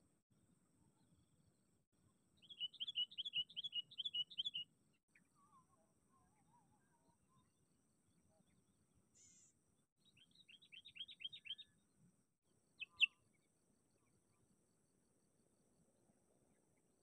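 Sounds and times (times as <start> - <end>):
bulbul calling: 2.4 - 4.6, 12.8 - 13.2.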